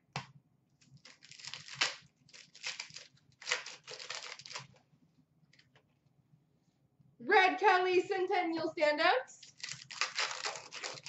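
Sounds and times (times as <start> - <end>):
foil wrapper crinkling and tearing: 0.8 - 4.8, 9.4 - 11.0.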